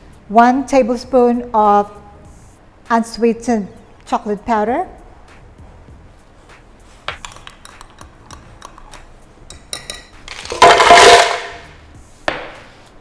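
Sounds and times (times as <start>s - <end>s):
ice cubes clattering into blender: 10.3s - 11.6s.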